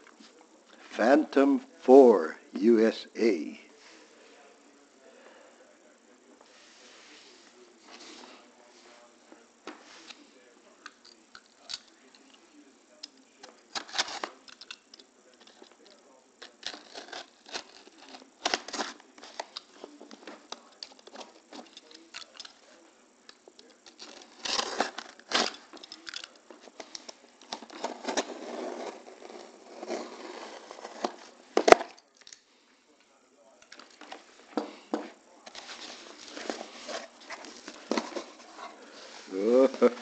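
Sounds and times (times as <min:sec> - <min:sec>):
cardboard rustling: 0:24.0 - 0:31.9, 0:35.5 - 0:40.0.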